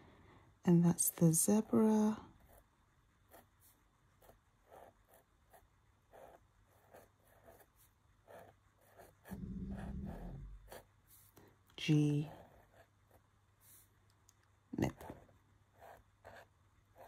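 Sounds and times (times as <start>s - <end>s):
pen nib scratching paper: 1.1s - 14.0s, 14.8s - 17.0s
low hum: 9.2s - 11.3s.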